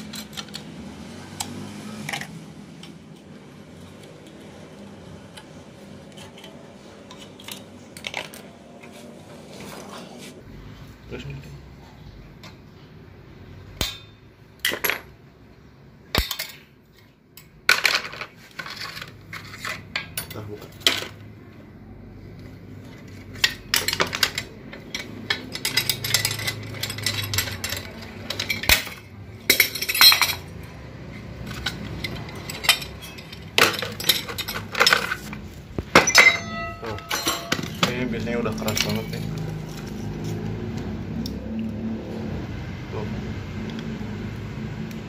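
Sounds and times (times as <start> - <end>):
metal parts and tools clinking: 0.0 - 8.8, 13.8 - 15.1, 16.1 - 21.4, 22.4 - 40.5.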